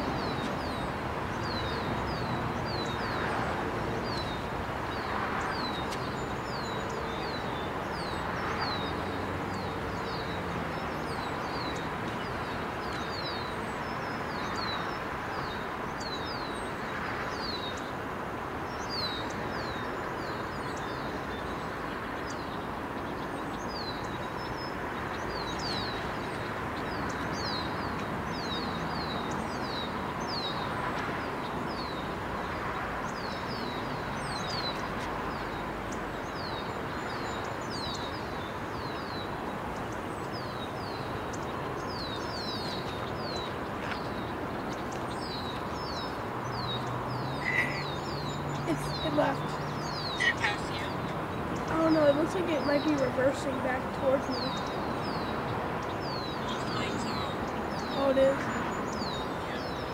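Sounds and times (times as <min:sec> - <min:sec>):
background rush: 0:00.0 - 0:59.9
birds chirping: 0:00.0 - 0:59.9.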